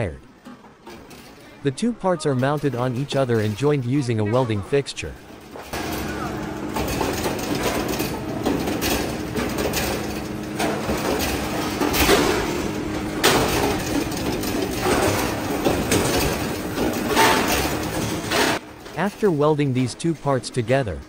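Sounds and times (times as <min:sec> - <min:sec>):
metal clatter: 0:00.4 - 0:01.6, 0:05.3 - 0:19.1.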